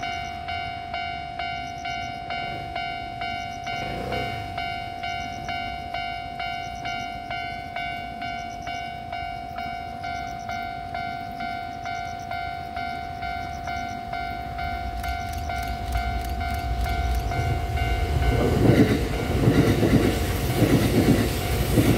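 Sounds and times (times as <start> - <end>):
level crossing warning bell: 0.0 - 21.9.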